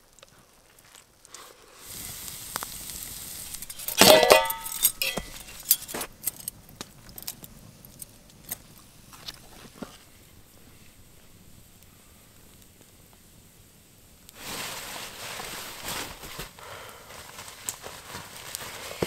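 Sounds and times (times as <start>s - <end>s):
steady hiss: 0.0s - 19.0s
metal cookware clanking: 3.8s - 5.9s.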